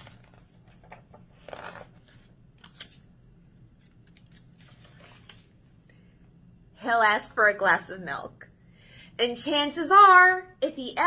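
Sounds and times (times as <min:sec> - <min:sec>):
paper pages rustling: 0:00.0 - 0:03.1, 0:03.7 - 0:05.8.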